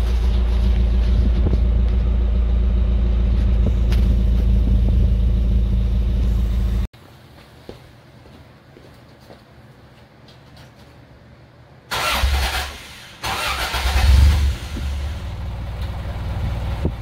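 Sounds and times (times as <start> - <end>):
car exhaust idling: 0.0 - 6.9, 14.2 - 17.0
faint background noise: 7.0 - 12.0.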